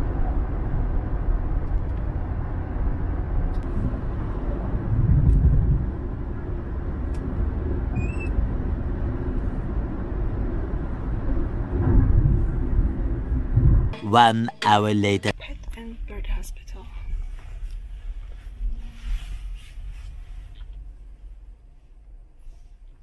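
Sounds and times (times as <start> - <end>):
car road and engine rumble: 0.0 - 14.3, 15.2 - 23.0.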